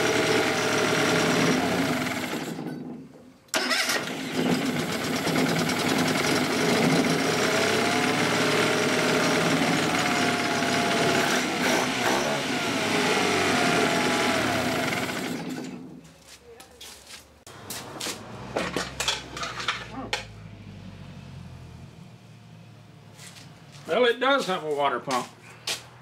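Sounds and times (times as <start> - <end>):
outboard motor revving: 0.0 - 2.6, 3.6 - 15.8.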